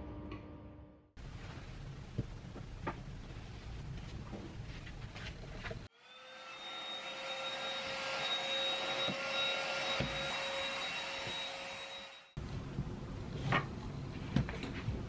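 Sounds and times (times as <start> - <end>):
vacuum cleaner running: 5.9 - 12.4.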